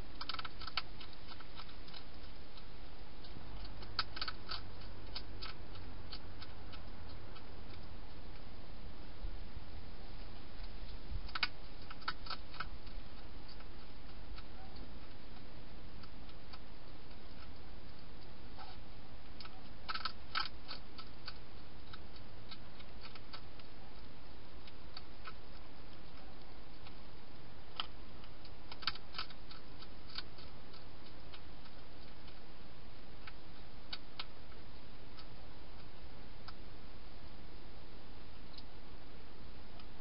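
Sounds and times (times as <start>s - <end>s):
hedgehog crunching dry food: 0.0s - 40.0s
steady hiss: 0.0s - 40.0s.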